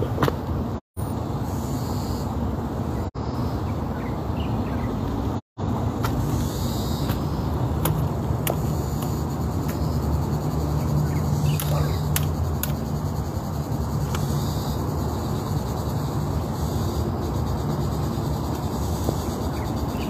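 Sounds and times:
insects chirping: 0:06.0 - 0:20.0
sharp clicks: 0:11.4 - 0:12.9.

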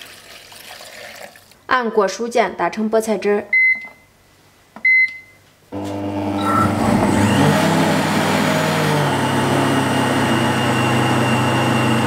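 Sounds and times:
blender motor running: 0:05.8 - 0:12.0
blender beep: 0:05.9 - 0:12.0.

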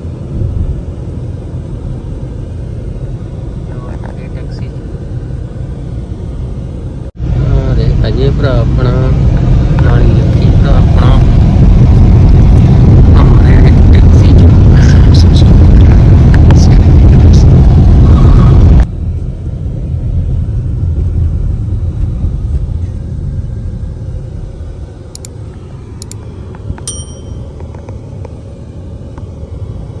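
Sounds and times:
car road and engine rumble: 0:00.0 - 0:30.0
sharp clicks: 0:25.2 - 0:25.4
short ringing ding: 0:26.8 - 0:27.6.

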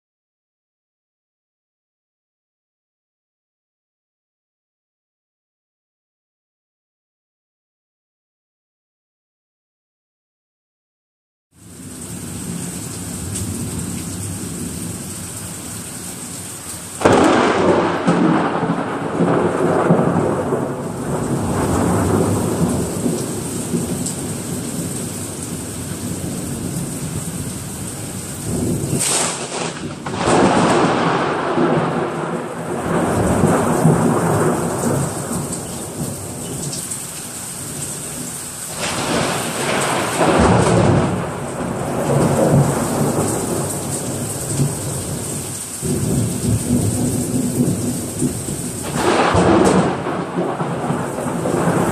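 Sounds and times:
heavy rain pouring: 0:11.6 - 0:51.9
thunder rumbling: 0:17.0 - 0:36.7, 0:38.7 - 0:51.9.

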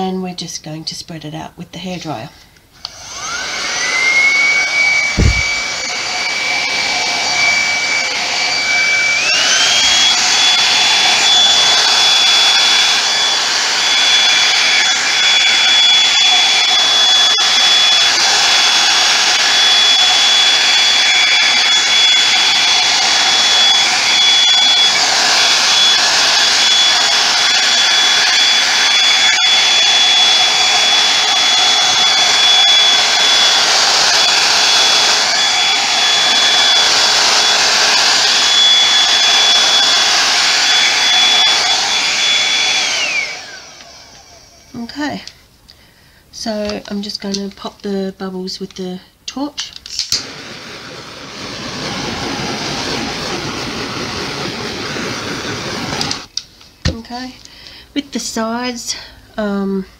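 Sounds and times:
hair dryer running: 0:02.8 - 0:45.0, 0:50.0 - 0:57.0
low thump: 0:05.2 - 0:05.6.

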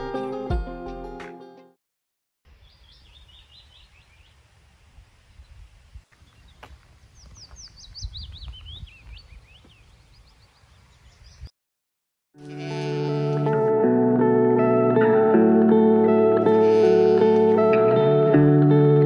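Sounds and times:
small songbirds chirping: 0:02.5 - 0:04.5, 0:05.3 - 0:11.5
wind rumbling on microphone: 0:02.6 - 0:11.5.

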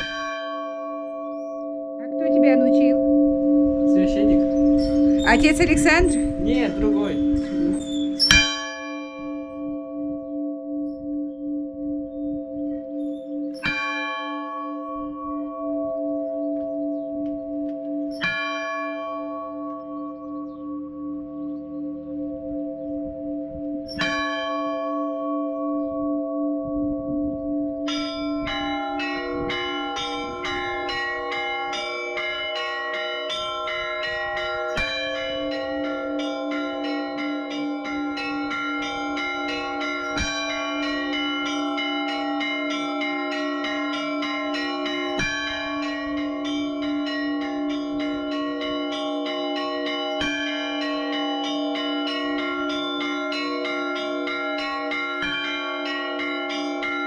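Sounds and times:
small bells in fast peal: 0:00.0 - 0:09.6, 0:27.9 - 0:57.0
church bells ringing: 0:00.0 - 0:57.0.

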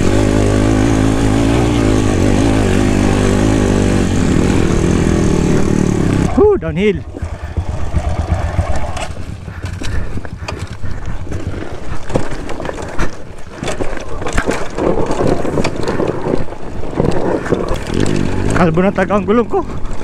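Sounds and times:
dirt bike engine rumble: 0:00.0 - 0:20.0
wind buffeting microphone: 0:06.6 - 0:18.6
bike knocks and rattles: 0:07.1 - 0:20.0.

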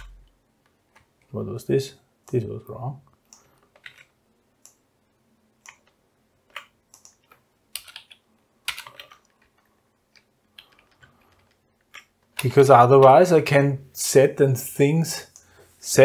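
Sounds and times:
keyboard typing: 0:03.2 - 0:04.8, 0:05.6 - 0:12.6.

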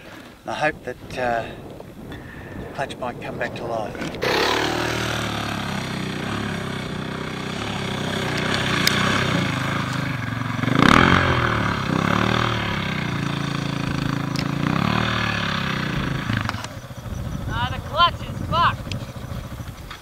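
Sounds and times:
motorcycle engine revving: 0:03.9 - 0:20.0.

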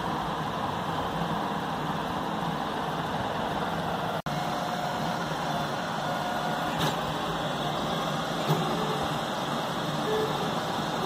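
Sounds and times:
fans humming: 0:00.0 - 0:11.0
stepper motor whines: 0:04.3 - 0:11.0.

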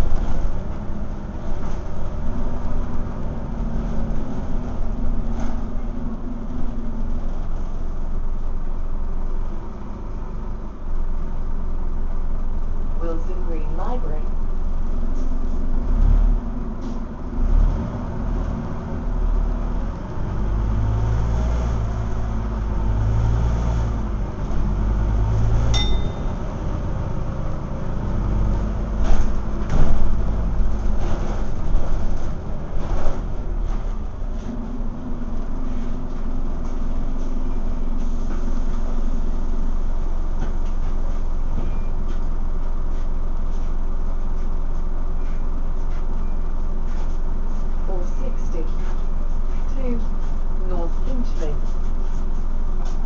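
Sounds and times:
bus diesel engine rumble: 0:00.0 - 0:53.0
brief high ding: 0:25.7 - 0:26.4
body rattles and knocks: 0:28.6 - 0:37.7.

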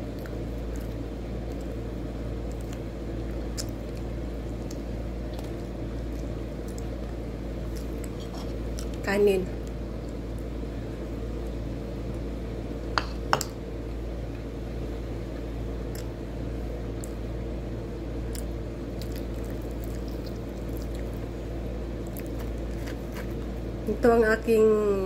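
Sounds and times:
mouth-closed chewing: 0:18.3 - 0:21.3.

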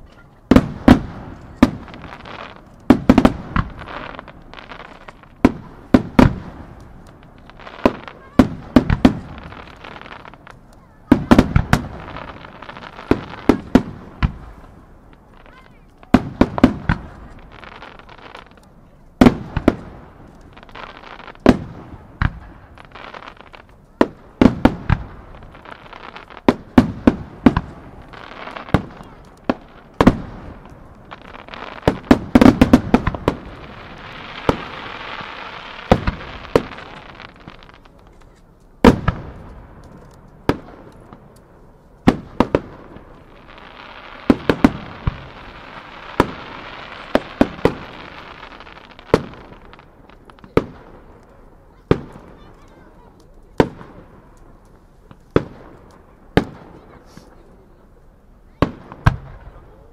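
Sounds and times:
fireworks bursting with bangs: 0:00.0 - 0:59.9
fireworks crackling hiss: 0:00.0 - 0:59.9.

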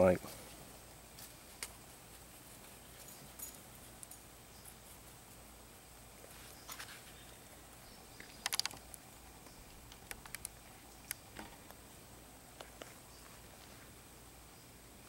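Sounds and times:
small clicks and ticks: 0:08.2 - 0:11.8.

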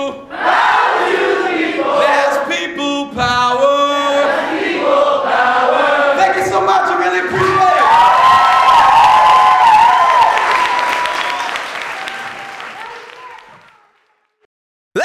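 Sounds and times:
voices singing like a choir: 0:00.0 - 0:07.7
man singing loudly: 0:02.0 - 0:04.3.

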